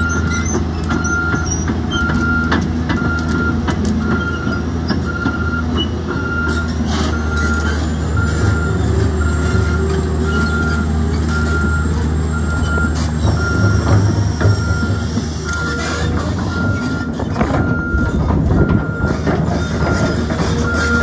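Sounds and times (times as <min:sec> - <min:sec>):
excavator diesel engine under load: 0:00.0 - 0:21.0
steel tracks clanking: 0:00.0 - 0:21.0
travel alarm beeping: 0:01.0 - 0:21.0.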